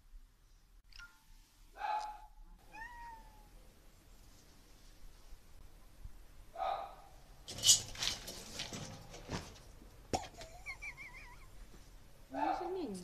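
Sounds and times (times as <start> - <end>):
cats scrambling on metal railing: 7.4 - 10.5.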